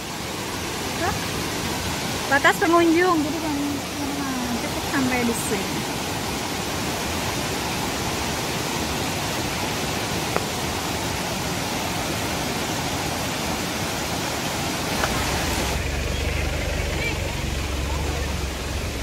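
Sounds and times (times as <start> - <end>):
mountain stream pouring over rocks: 0.0 - 19.0.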